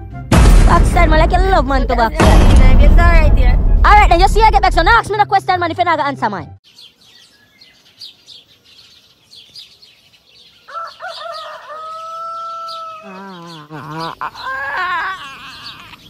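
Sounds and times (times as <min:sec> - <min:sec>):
small birds chirping: 0:06.6 - 0:16.0
rooster crowing: 0:10.6 - 0:13.6.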